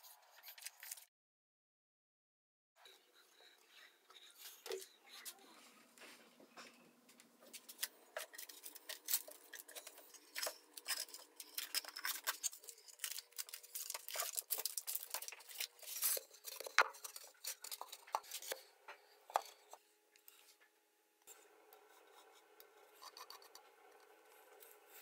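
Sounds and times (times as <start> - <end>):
wooden staves clicking and knocking: 7.4 - 18.7.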